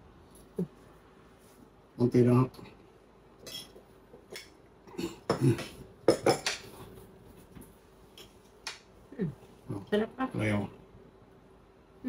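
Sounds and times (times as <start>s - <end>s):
cutlery and dishes clinking: 3.4s - 4.6s.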